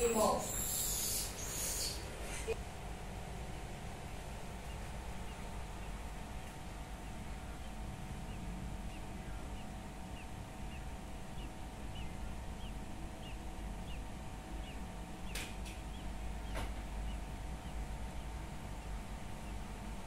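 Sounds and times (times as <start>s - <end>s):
steady low hum: 0.0s - 20.0s
sharp clicks: 15.2s - 15.9s.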